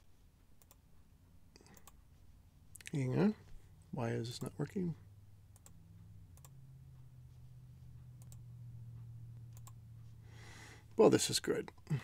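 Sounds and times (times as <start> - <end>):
low steady hum: 0.0 - 12.0
computer clicks: 0.6 - 0.8, 1.6 - 2.0, 5.5 - 6.6, 8.2 - 8.5, 9.5 - 9.8.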